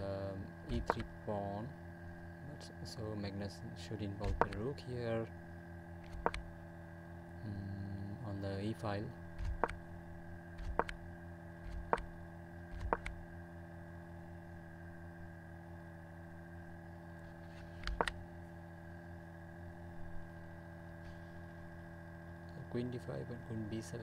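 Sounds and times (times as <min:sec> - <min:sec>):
steady electrical hum: 0:00.0 - 0:24.0
sharp computer clicks: 0:00.7 - 0:01.2, 0:04.2 - 0:04.7, 0:06.0 - 0:06.5, 0:09.4 - 0:09.8, 0:10.6 - 0:11.0, 0:11.6 - 0:12.1, 0:12.7 - 0:13.2, 0:17.8 - 0:18.2.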